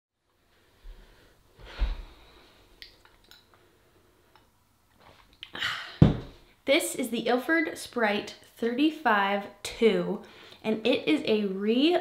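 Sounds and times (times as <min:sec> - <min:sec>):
person exhaling: 0:05.5 - 0:06.0
soft thump: 0:06.0 - 0:06.4.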